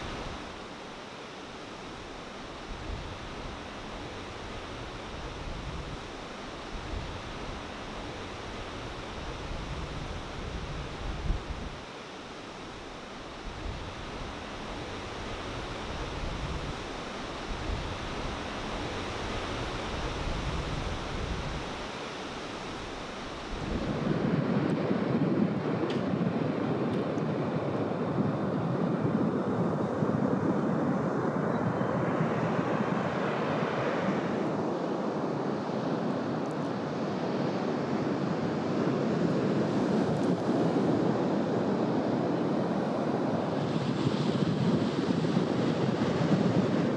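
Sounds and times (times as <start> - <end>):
ocean surf breaking: 0.0 - 24.3
wind buffeting microphone: 2.6 - 11.9, 12.8 - 33.8, 37.0 - 46.9.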